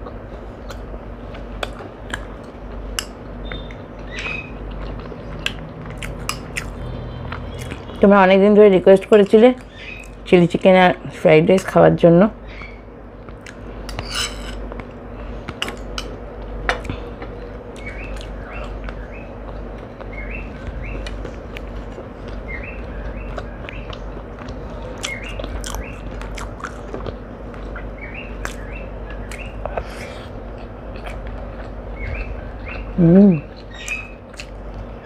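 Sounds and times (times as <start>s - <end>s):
sharp eating clicks: 0.0s - 8.1s, 12.6s - 35.0s
steady low hum: 0.0s - 35.0s
small bird chirping: 3.4s - 5.6s, 9.6s - 10.2s, 17.4s - 21.2s, 22.3s - 24.1s, 31.9s - 34.4s.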